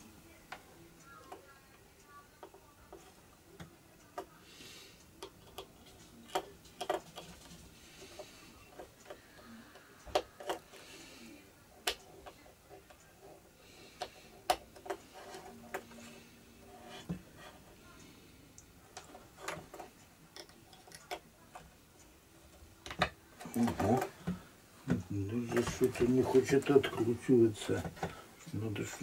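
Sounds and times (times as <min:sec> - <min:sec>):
small tools clicking and tapping: 0:18.9 - 0:21.6, 0:22.8 - 0:27.1.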